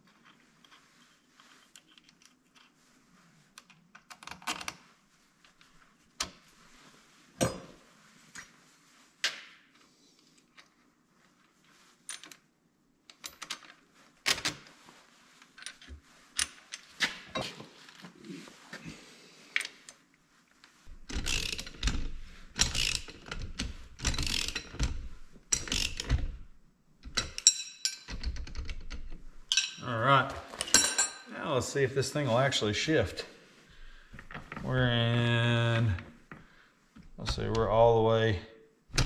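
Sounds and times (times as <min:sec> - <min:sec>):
wrench ratcheting: 0:21.1 - 0:22.0, 0:22.6 - 0:23.4, 0:24.0 - 0:26.2.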